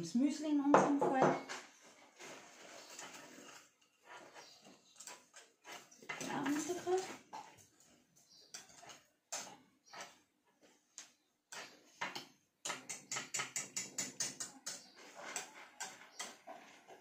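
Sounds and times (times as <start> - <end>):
whisk beating in metal saucepan: 2.8 - 7.9, 8.5 - 10.2, 11.5 - 17.0.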